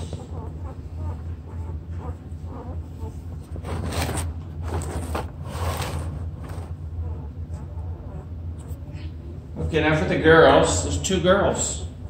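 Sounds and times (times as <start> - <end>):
steady low hum: 0.0 - 12.0
rustling and scraping from handling: 3.1 - 6.8.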